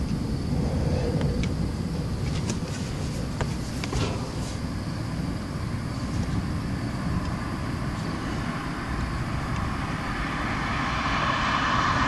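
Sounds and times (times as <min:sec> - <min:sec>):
thunderstorm rumbling: 0:00.0 - 0:03.3, 0:06.3 - 0:12.0.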